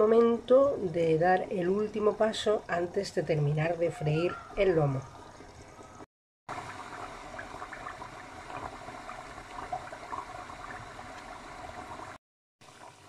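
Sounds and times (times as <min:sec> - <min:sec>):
meat frying in fat: 0:06.5 - 0:13.0.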